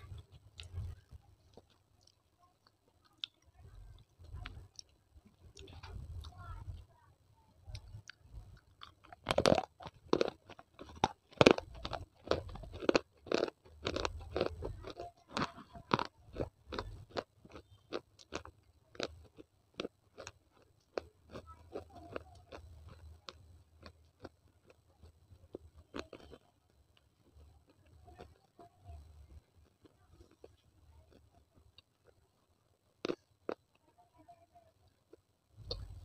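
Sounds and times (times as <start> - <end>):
clay pieces crunched by teeth: 8.8 - 19.2.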